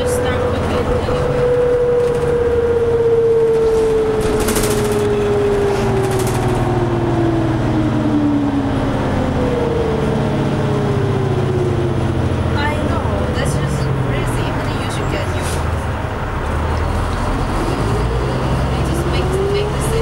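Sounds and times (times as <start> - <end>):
bus electric drive whine: 0.0 - 20.0
diesel engine hum: 0.0 - 20.0.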